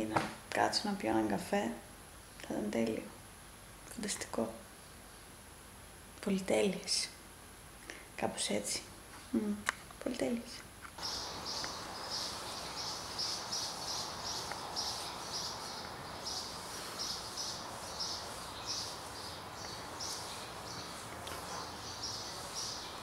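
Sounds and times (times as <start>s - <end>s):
steady hiss: 3.1s - 23.0s
rhythmic high-pitched chirping: 11.0s - 23.0s.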